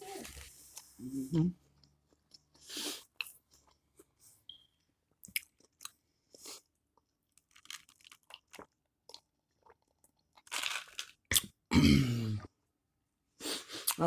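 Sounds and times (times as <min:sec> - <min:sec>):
person chewing food: 0:05.1 - 0:11.6.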